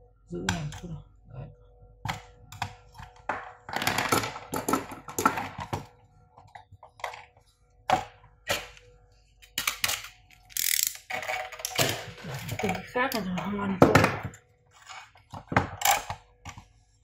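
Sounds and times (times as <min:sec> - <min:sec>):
faint steady hum: 0:00.0 - 0:17.0
circuit board clicking and rattling: 0:09.4 - 0:13.3.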